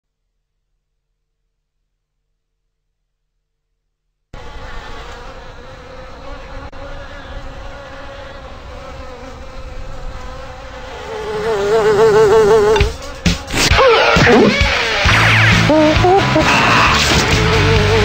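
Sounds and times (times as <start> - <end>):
cartoon housefly buzzing: 4.4 - 18.0.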